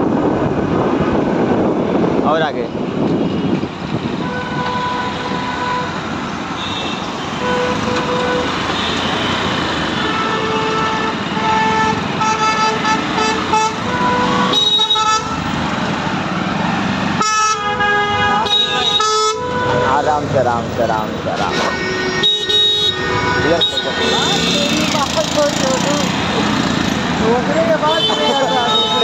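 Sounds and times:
engines and road noise: 0.0 - 29.0
vehicle horns honking: 3.2 - 15.6, 17.2 - 20.2, 21.3 - 26.0, 27.6 - 29.0
loud blaring horn: 4.2 - 6.0, 6.6 - 15.5, 17.2 - 20.0, 21.4 - 25.1, 27.8 - 29.0.

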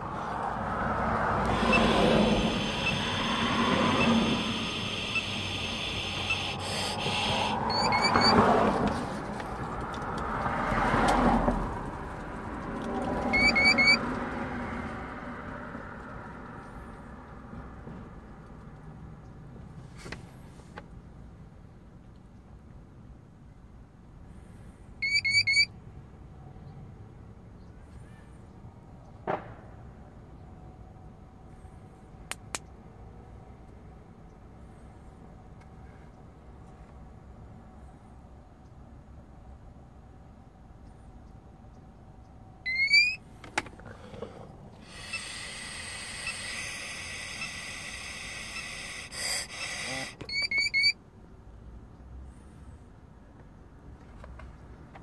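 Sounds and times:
breath blown into mouthpiece: 1.5 - 8.3, 44.8 - 50.2
rising electronic chirps: 1.6 - 8.4, 13.3 - 14.0, 25.0 - 25.7, 42.7 - 43.2, 50.3 - 51.0.

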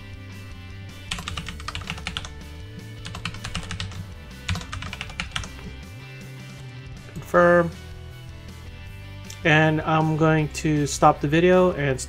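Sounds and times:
background music: 0.0 - 12.0
keyboard typing: 1.0 - 2.4, 3.0 - 5.8.

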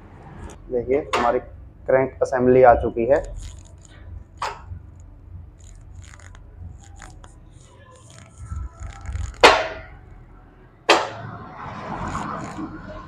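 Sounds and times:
metal scrape: 5.6 - 10.0.

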